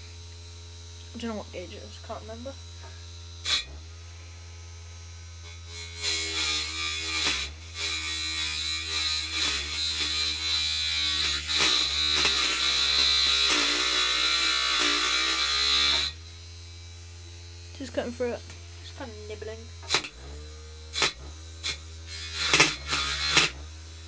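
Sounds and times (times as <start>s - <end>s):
saw motor whining and grinding: 0.0s - 24.0s.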